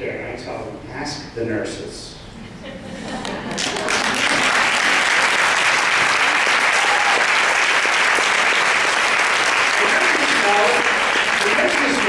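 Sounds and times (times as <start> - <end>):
audience applauding and cheering: 3.3 - 12.0.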